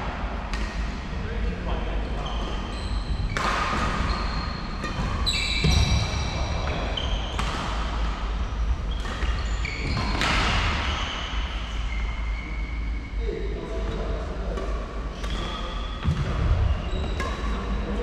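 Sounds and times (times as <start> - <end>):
rackets hitting shuttlecocks: 3.2 - 10.9
shoes squeaking on wooden floor: 16.7 - 17.1.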